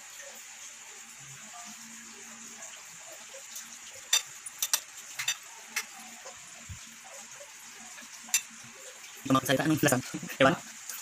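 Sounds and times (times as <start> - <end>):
utensil clinking against plate: 4.1 - 6.0, 8.3 - 8.6.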